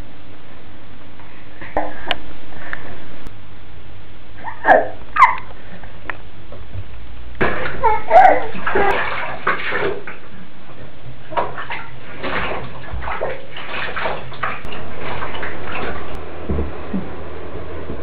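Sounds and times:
bath water splashing: 0:07.4 - 0:18.0
baby vocal sound: 0:07.8 - 0:09.0.

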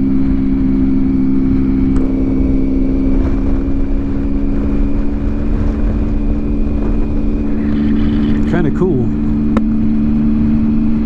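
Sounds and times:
motorcycle engine cruising: 0:00.0 - 0:11.0
wind rumble on microphone: 0:00.0 - 0:11.0.

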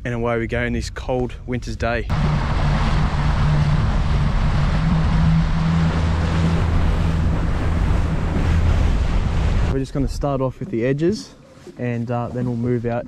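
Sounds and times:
outboard motor running: 0:02.1 - 0:09.8
spray off hull: 0:02.1 - 0:09.8
wind on microphone: 0:02.1 - 0:10.8.

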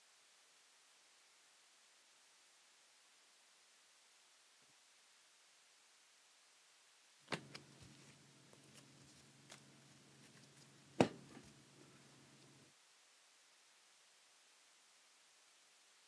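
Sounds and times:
trading cards clicking and tapping: 0:07.3 - 0:07.7, 0:11.0 - 0:11.4
low steady hum: 0:07.3 - 0:13.4.

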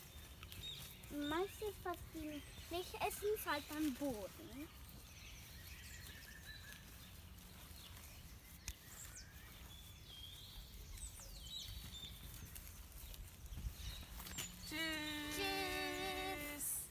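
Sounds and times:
faint bird chirps and whistles: 0:00.0 - 0:16.9.

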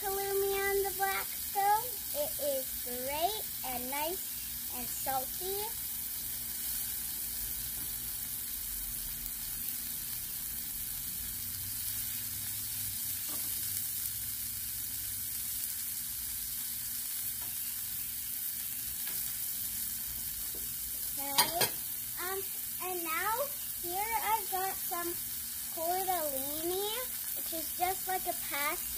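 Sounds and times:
food sizzling on a griddle: 0:00.0 - 0:28.9.

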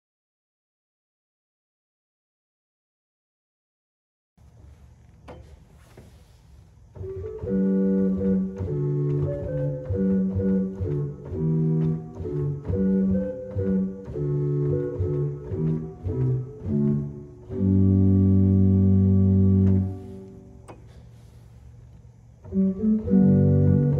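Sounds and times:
organ stop click: 0:07.0 - 0:23.9
pipe organ sustained chords: 0:07.0 - 0:23.9.

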